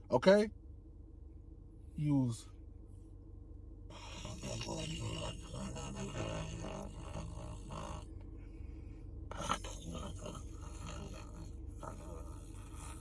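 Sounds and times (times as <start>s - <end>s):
man imitating snoring: 3.9s - 8.1s, 9.3s - 13.0s.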